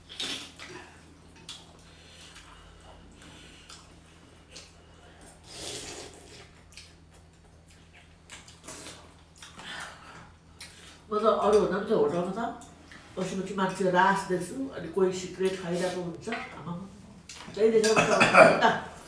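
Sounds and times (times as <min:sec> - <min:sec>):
low steady hum: 0:00.0 - 0:19.0
people slurping soup: 0:05.2 - 0:06.6.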